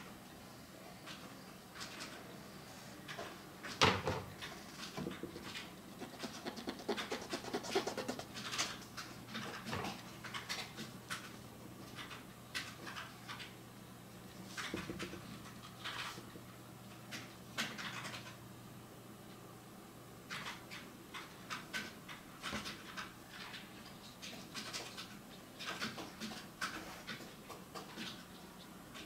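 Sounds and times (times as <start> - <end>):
brush pen scratching paper: 6.0 - 8.6.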